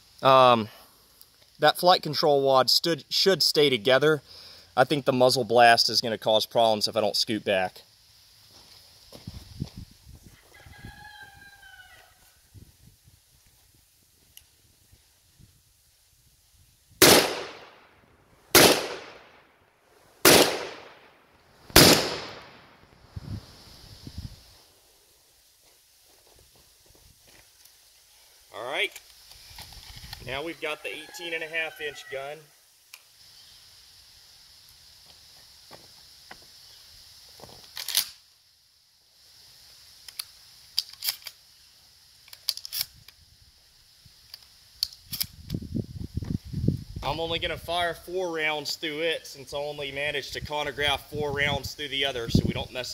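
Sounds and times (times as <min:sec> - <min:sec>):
shotgun shots echoing: 0:17.0 - 0:17.8, 0:18.5 - 0:19.3, 0:20.2 - 0:21.1, 0:21.8 - 0:22.6
shotgun mechanism clicking: 0:37.7 - 0:38.2, 0:40.1 - 0:41.4.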